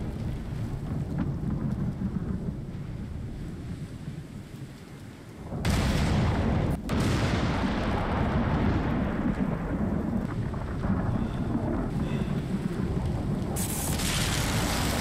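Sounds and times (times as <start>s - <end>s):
thunder rumbling: 0.0s - 15.0s
sharp thunder crack: 5.5s - 15.0s.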